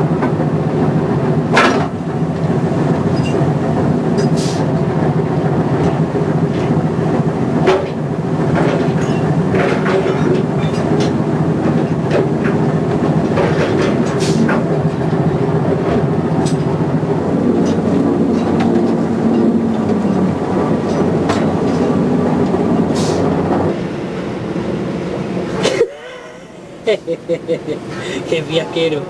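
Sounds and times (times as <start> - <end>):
engine and deck machinery drone: 0.0 - 29.0
knocks and clanks from deck gear: 1.5 - 2.0, 7.6 - 11.2, 11.8 - 14.8, 17.7 - 22.6.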